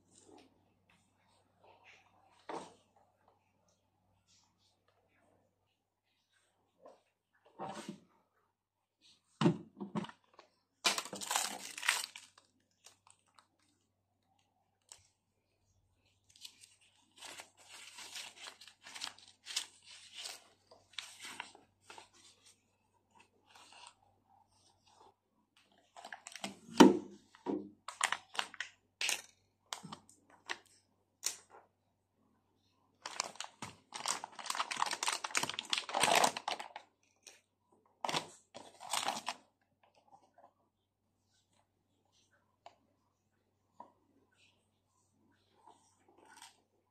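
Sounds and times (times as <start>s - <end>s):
packaging rustling and crinkling: 10.0s - 13.7s, 16.3s - 22.3s, 27.9s - 29.2s, 33.0s - 36.9s, 38.0s - 39.4s.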